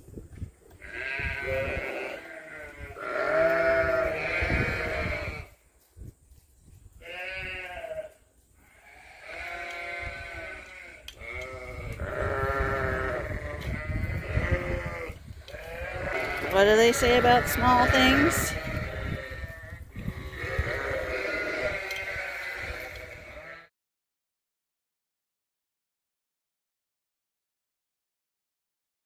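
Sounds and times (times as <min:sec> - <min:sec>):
sheep bleating: 0:00.8 - 0:05.5, 0:07.0 - 0:23.7.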